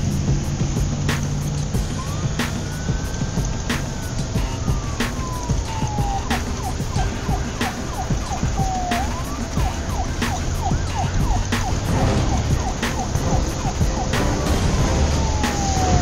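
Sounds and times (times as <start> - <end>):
siren wailing and yelping: 1.7 - 16.0.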